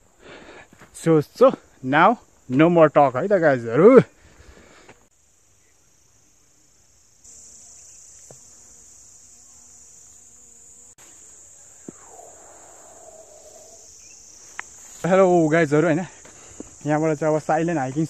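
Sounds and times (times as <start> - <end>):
insects droning: 0.0 - 18.0
faint ticks: 14.4 - 14.8.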